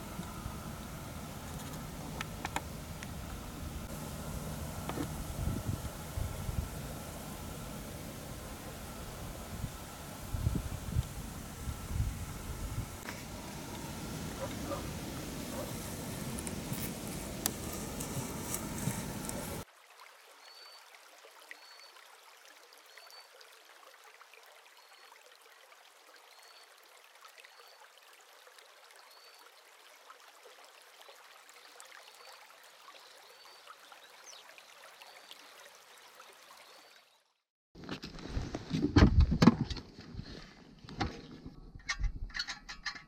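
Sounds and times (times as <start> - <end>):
outdoor hiss: 0.0 - 19.7.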